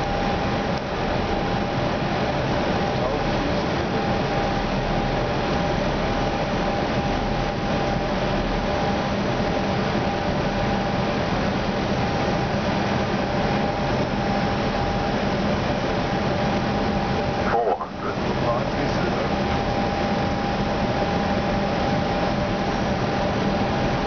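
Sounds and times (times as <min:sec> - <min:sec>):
faint steady hums: 0:00.0 - 0:24.0
airflow rushing in cockpit: 0:11.4 - 0:24.0.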